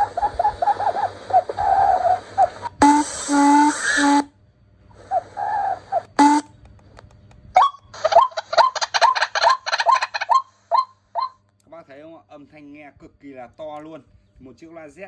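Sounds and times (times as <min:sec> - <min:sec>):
recorded bird calls through speaker: 0:00.0 - 0:04.3, 0:04.9 - 0:11.4.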